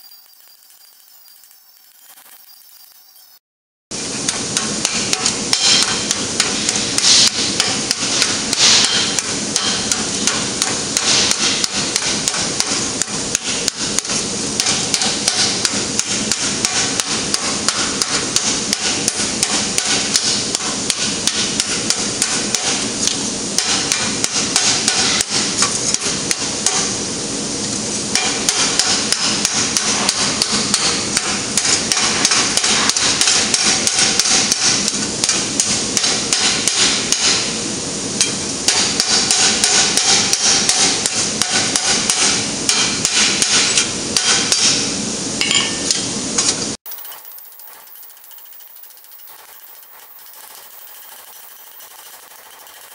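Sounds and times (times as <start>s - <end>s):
hammer striking metal plate on anvil: 4.2s - 26.9s, 28.1s - 37.5s, 38.2s - 46.1s.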